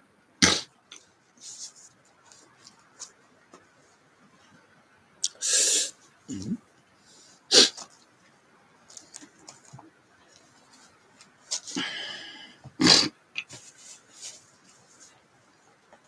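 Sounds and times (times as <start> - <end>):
man snorting: 11.7 - 13.2.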